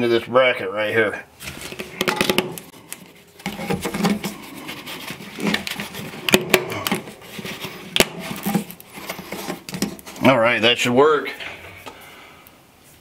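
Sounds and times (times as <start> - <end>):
plastic hose scraping and rustling: 1.4 - 10.5.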